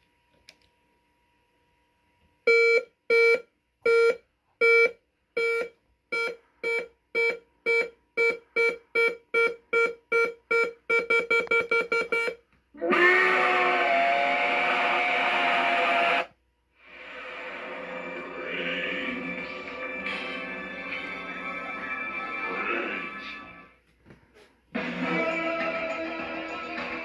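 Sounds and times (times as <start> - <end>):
countdown beeps from speaker: 2.5 - 12.4.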